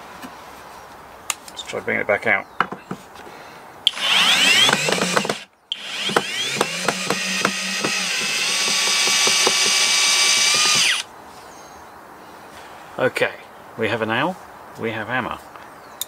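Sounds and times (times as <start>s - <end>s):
drill rapid clicking: 3.9s - 11.0s
cordless drill motor whirring: 3.9s - 11.1s.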